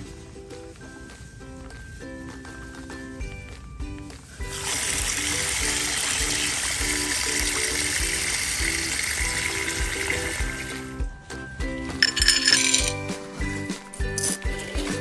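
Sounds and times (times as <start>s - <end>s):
background music: 0.0s - 15.0s
tap water pouring onto clams: 4.5s - 10.7s.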